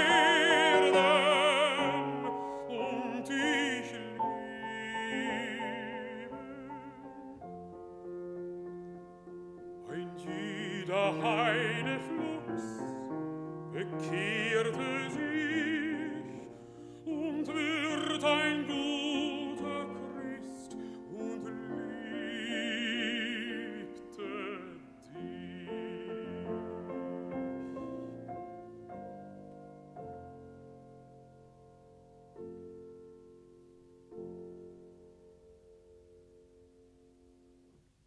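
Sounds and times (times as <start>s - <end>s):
baritone singing with vibrato: 0.0s - 7.4s, 9.8s - 27.6s
piano accompaniment: 0.0s - 38.0s.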